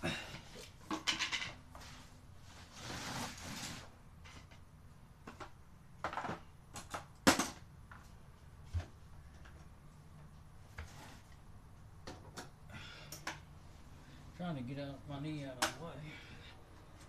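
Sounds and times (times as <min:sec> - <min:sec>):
scraping rustle: 0:01.7 - 0:04.4.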